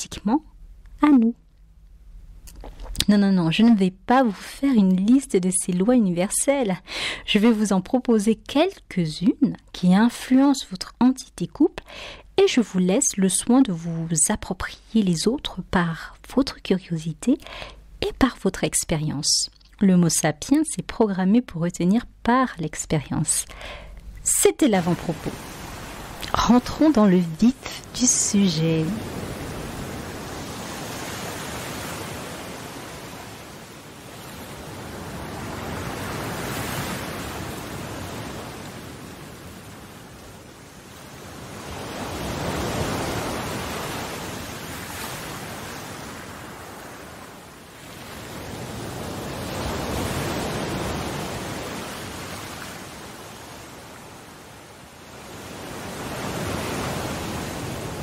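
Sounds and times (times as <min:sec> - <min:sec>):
ocean waves washing ashore: 0:23.2 - 0:58.0.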